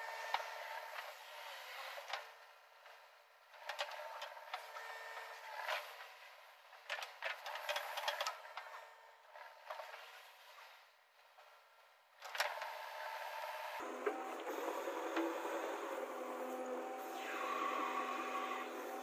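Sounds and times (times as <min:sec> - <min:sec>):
backhoe engine and hydraulics whine: 0:03.6 - 0:06.6, 0:12.5 - 0:19.0.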